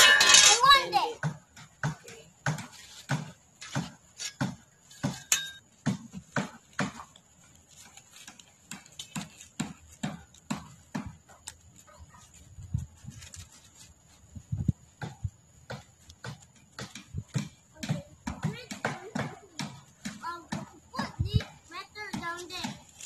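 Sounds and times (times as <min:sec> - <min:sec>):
soft knocks and thuds: 0:01.2 - 0:07.2.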